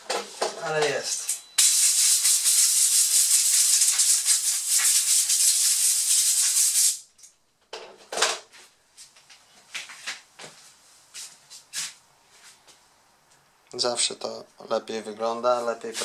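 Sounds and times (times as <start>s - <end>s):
compressed air blow gun hissing: 1.6s - 7.0s.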